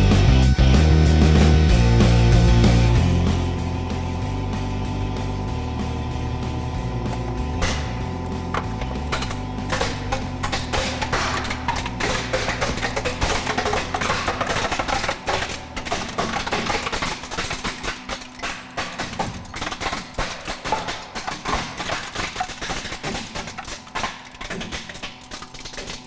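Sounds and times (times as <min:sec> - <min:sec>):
background music: 0:00.0 - 0:15.8
plastic toy cracking under press: 0:08.8 - 0:26.0.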